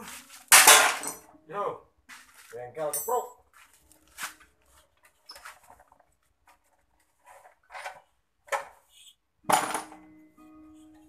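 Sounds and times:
metal tools clinking and knocking: 0.5s - 1.3s, 2.8s - 3.4s.

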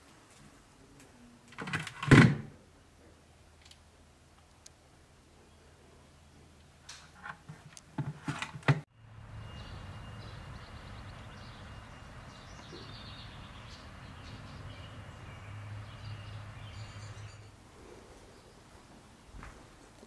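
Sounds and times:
outdoor background hiss: 0.0s - 20.0s
small birds chirping: 9.0s - 20.0s.

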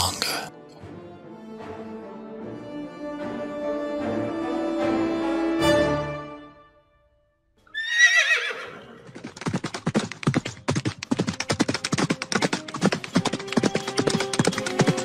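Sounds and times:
horse whinnying: 7.7s - 9.2s
galloping hoofbeats: 8.6s - 15.0s.

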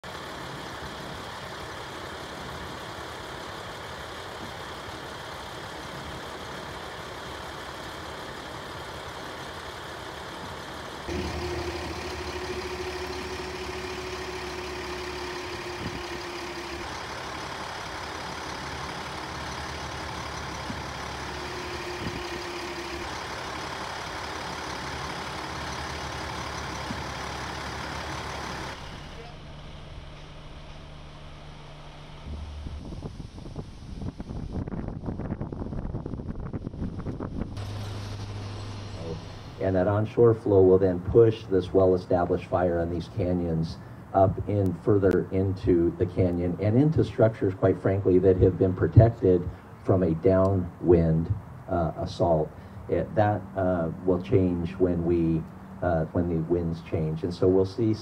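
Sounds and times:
deep engine rumble with hum: 0.0s - 58.0s
fire engine running: 0.0s - 58.0s
wind: 0.0s - 58.0s
fire burning: 0.1s - 31.4s.

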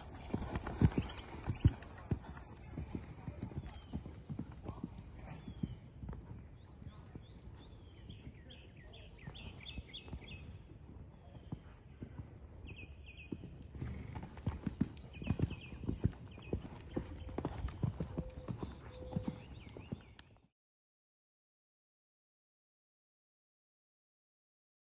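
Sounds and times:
horse hoofbeats on sand: 0.0s - 10.6s, 11.2s - 20.2s.

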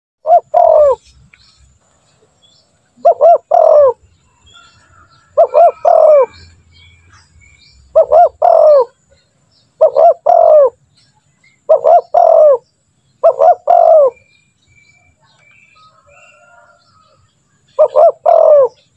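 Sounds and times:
dove cooing: 0.2s - 1.0s, 3.0s - 4.0s, 4.6s - 6.5s, 7.9s - 9.0s, 9.8s - 10.8s, 11.7s - 12.6s, 13.2s - 14.2s, 17.7s - 18.9s.

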